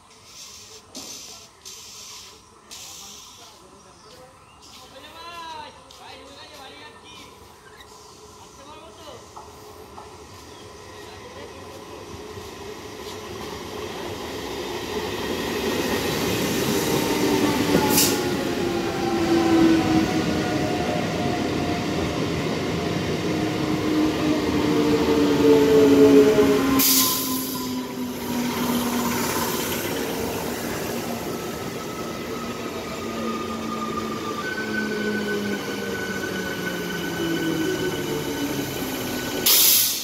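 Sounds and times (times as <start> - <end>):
train wheels on track: 0.0 - 40.0
short hissing bursts: 0.1 - 3.6.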